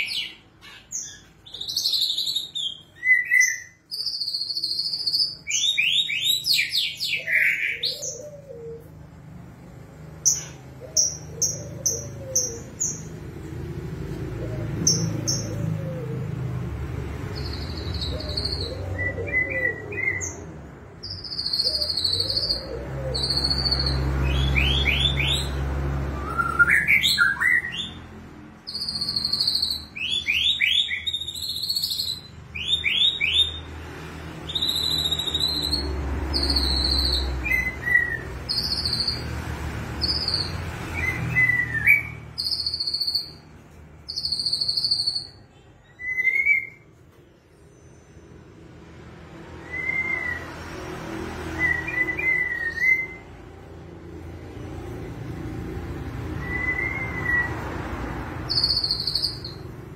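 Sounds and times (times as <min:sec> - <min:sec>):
songbird whistling and trilling: 0:00.0 - 0:08.8, 0:17.3 - 0:28.0, 0:28.6 - 0:33.7, 0:34.4 - 0:39.3, 0:40.0 - 0:47.0, 0:49.6 - 0:50.8, 0:51.4 - 0:53.4, 0:56.2 - 0:57.8, 0:58.4 - 0:59.9.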